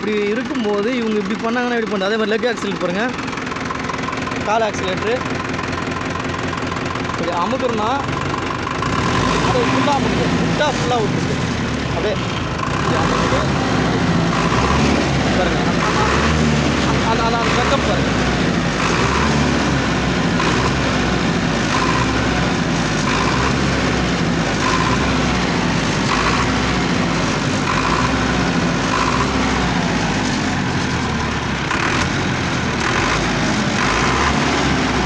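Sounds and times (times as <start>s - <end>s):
man talking: 0.0s - 3.2s, 4.4s - 5.3s, 7.1s - 8.1s, 9.3s - 13.9s, 14.5s - 18.4s
higher-pitched engine noise: 0.0s - 35.0s
tractor diesel engine revving: 0.0s - 35.0s.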